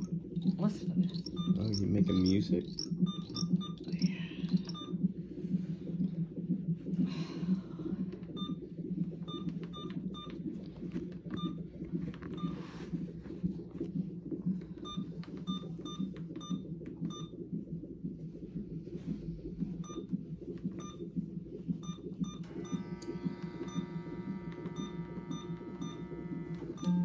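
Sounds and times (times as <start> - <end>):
small electronic beeps: 0.0 - 5.1, 8.3 - 8.6, 11.2 - 11.7, 19.8 - 21.1, 21.8 - 27.0
fetal heartbeat pulsing: 0.0 - 27.0.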